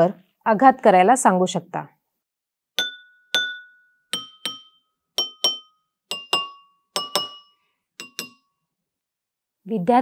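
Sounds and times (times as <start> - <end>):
pencil tapping water-filled bowls: 2.8 - 8.6.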